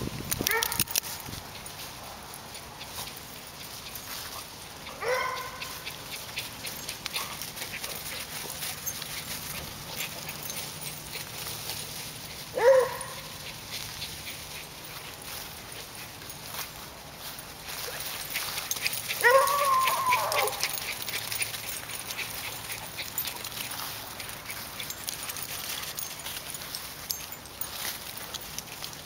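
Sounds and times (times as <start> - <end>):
paws rustling in dry leaves: 0.0 - 29.0
dog barking: 0.5 - 0.8, 5.0 - 5.7, 12.6 - 13.3, 19.2 - 20.6.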